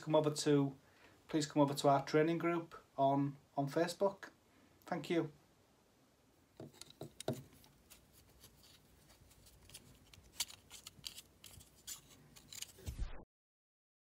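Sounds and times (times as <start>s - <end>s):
tape crinkling and scraping: 6.6s - 13.0s.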